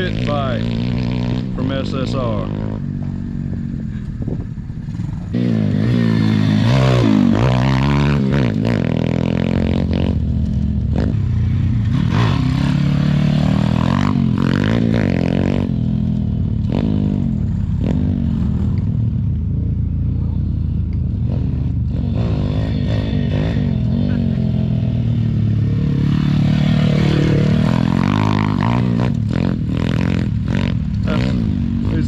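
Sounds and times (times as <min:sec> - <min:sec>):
small motorbike engine revving: 0:21.2 - 0:32.0.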